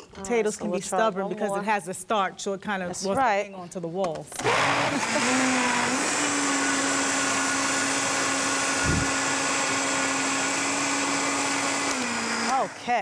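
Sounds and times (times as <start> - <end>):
blender running: 4.4 - 13.0.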